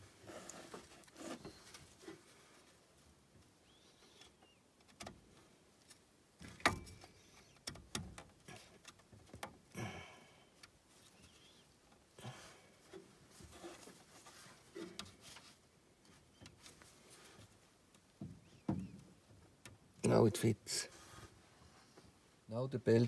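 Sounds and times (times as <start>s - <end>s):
scraping and rustling of cables: 0.0s - 2.8s, 12.8s - 17.7s.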